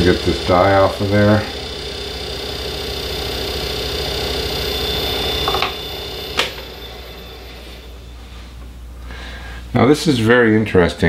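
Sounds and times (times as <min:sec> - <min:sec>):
small lathe running: 0:00.0 - 0:08.3.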